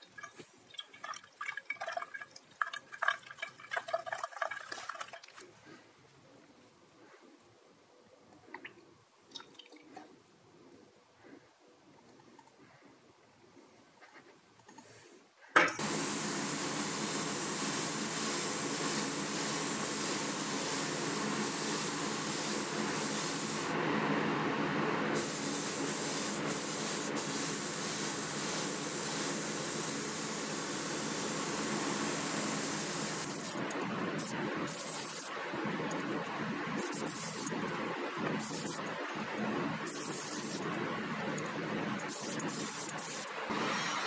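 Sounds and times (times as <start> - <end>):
spray gun hissing: 15.8 - 23.8, 25.1 - 37.6, 38.3 - 38.9, 39.8 - 40.8, 42.0 - 44.0.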